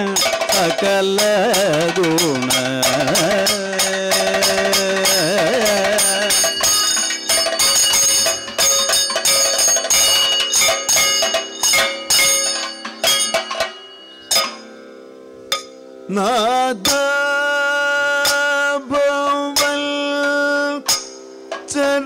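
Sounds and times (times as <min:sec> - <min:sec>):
person singing: 0:00.0 - 0:07.0, 0:16.1 - 0:20.9, 0:21.7 - 0:22.0
drumming: 0:00.0 - 0:14.6
ringing gong and cymbals: 0:00.0 - 0:15.9.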